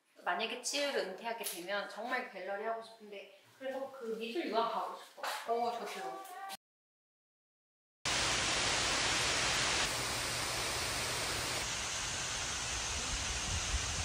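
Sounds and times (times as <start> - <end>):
waterfall rushing: 8.1 - 14.0.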